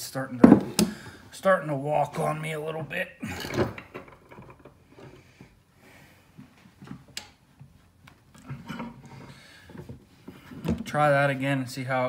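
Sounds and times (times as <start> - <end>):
metal clicks and knocks: 3.5 - 4.8.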